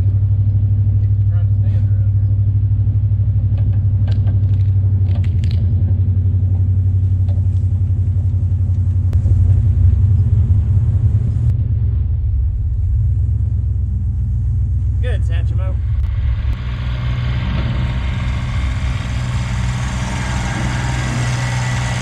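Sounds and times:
tractor engine under load: 0:15.8 - 0:22.0.

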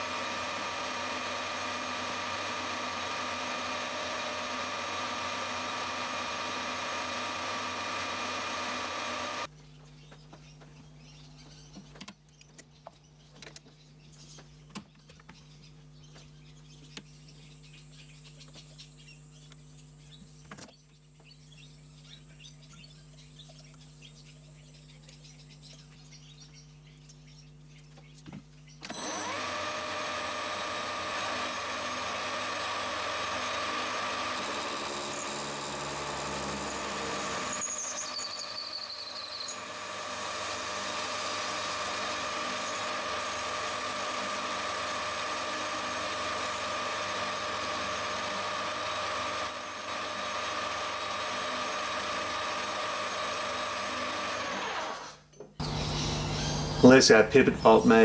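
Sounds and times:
metal lathe running: 0:00.0 - 0:09.5, 0:28.9 - 0:55.2.

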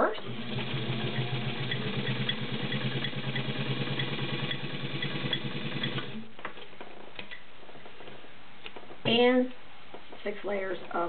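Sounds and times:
sewing machine motor humming: 0:00.2 - 0:06.3
needle mechanism ticking: 0:00.4 - 0:06.2.

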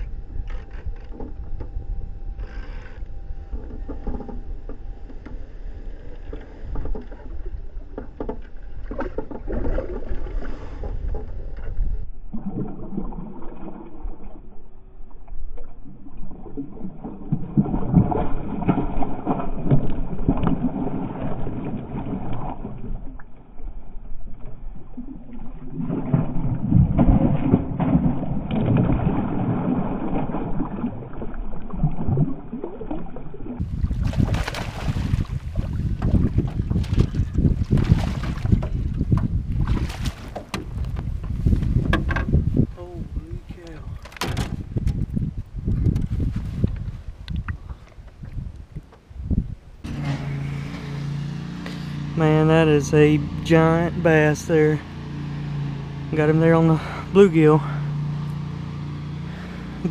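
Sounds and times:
water sloshing: 0:00.0 - 0:59.9
wind on microphone: 0:06.4 - 0:12.3, 0:33.6 - 0:49.9
fish splashing at surface: 0:25.4 - 0:38.8.

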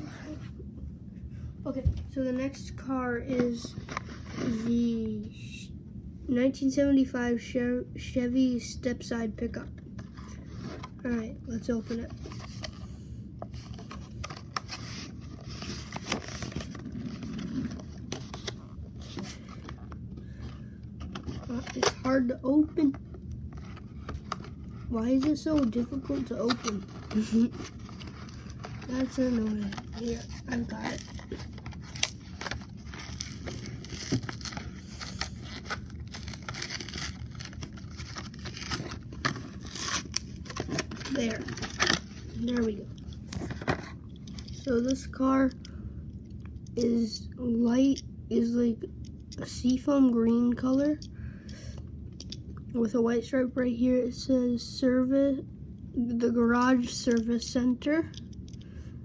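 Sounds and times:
plastic package crackling and scraping: 0:13.5 - 0:20.4, 0:21.0 - 0:45.1
plastic crinkling: 0:25.2 - 0:44.7
cardboard tearing: 0:25.3 - 0:42.2.

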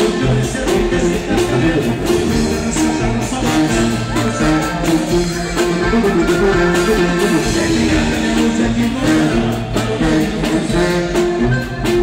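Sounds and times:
drums: 0:00.0 - 0:12.0
guitar: 0:00.0 - 0:12.0
horn melody: 0:00.0 - 0:12.0
tuba bass line: 0:00.0 - 0:12.0.

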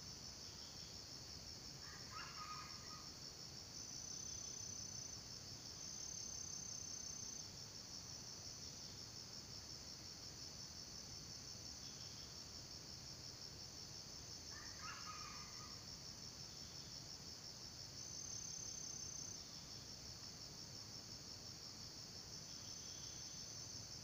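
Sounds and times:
insects trilling: 0:01.7 - 0:08.1, 0:11.6 - 0:24.0.

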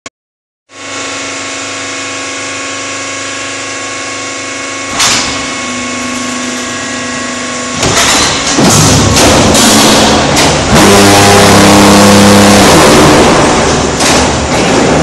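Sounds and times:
machine hum: 0:00.7 - 0:15.0
rough mechanical noise: 0:00.8 - 0:15.0
loud machine clunk: 0:04.9 - 0:05.7, 0:07.7 - 0:15.0.

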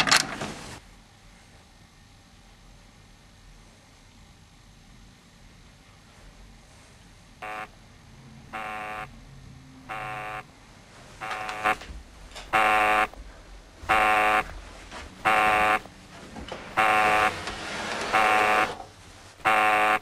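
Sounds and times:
electronic alarm buzzer beeping: 0:07.4 - 0:07.8, 0:08.5 - 0:09.2, 0:09.9 - 0:10.5, 0:11.2 - 0:11.8, 0:12.5 - 0:13.2, 0:13.8 - 0:14.5, 0:15.2 - 0:15.9, 0:16.7 - 0:17.4, 0:18.1 - 0:18.8, 0:19.4 - 0:20.0.

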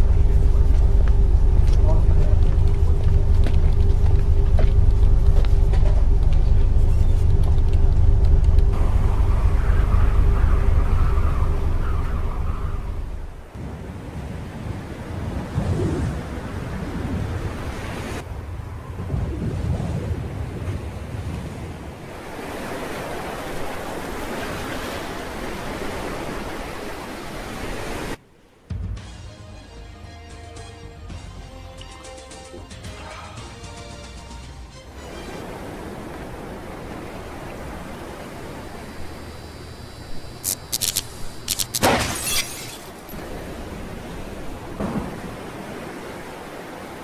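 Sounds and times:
low rumble: 0:00.0 - 0:13.6
steady rushing noise: 0:00.0 - 0:21.0
sea waves and surf: 0:08.7 - 0:28.8, 0:34.2 - 0:47.0
glass shattering: 0:41.7 - 0:43.0.

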